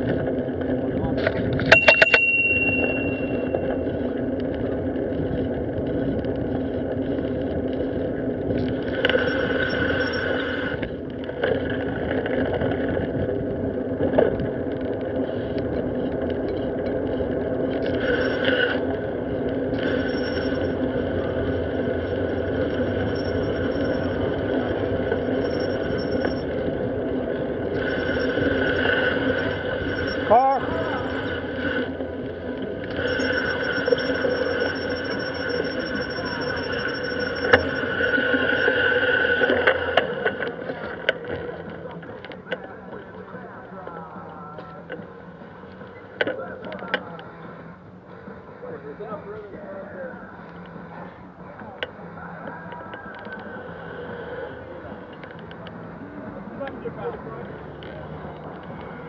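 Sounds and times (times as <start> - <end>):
bicycle road and wind noise: 0.0 - 59.0
ringing tone: 1.6 - 4.4, 8.8 - 10.8, 17.8 - 40.9.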